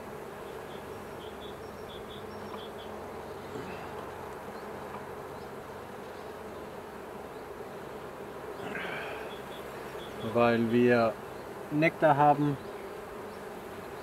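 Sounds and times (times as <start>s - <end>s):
bees buzzing: 0.0s - 14.0s.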